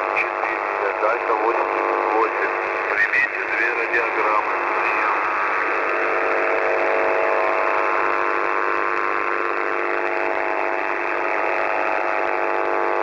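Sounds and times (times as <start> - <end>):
radio static hiss: 0.0 - 13.0
whining interference tones: 0.0 - 13.0.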